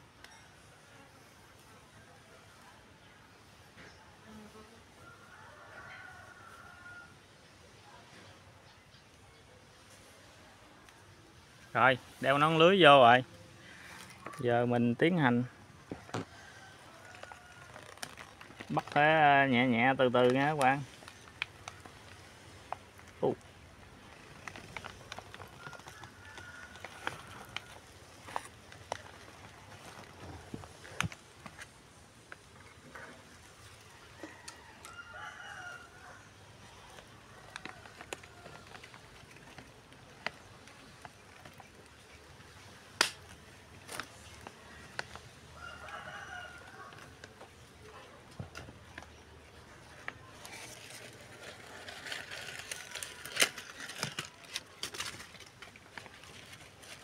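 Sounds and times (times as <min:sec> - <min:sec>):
rooster crowing: 0:05.0 - 0:07.2, 0:16.2 - 0:17.8, 0:25.6 - 0:27.9, 0:33.9 - 0:36.3, 0:44.9 - 0:47.1
plastic sheet crinkling: 0:16.6 - 0:31.8, 0:36.7 - 0:45.4, 0:50.2 - 0:57.0.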